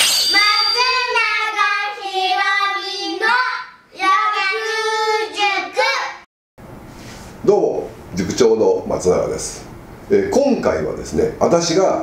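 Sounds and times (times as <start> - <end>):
child singing a jingle: 0.0 - 6.2.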